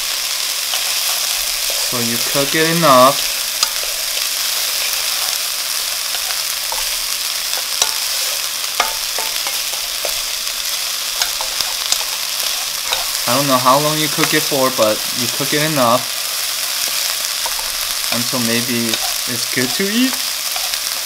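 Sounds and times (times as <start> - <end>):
vegetables sizzling in oil: 0.0 - 21.0
spatula tapping and scraping pan: 3.2 - 13.4, 14.0 - 14.5, 16.6 - 21.0.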